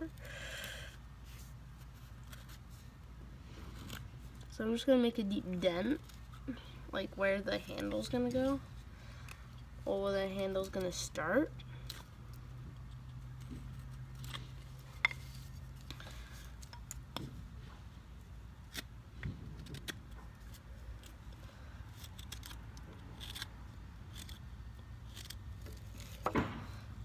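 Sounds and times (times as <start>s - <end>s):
knife cutting wood: 21.9s - 26.4s.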